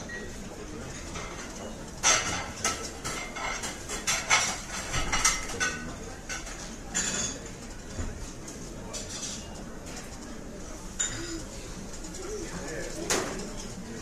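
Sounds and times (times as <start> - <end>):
dishes and cutlery clattering: 0.8 - 10.1, 10.9 - 11.6.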